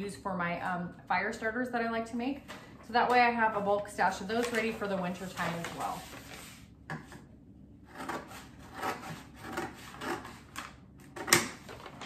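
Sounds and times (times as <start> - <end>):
paper bags rustling and scraping: 3.6 - 6.7, 11.6 - 12.0.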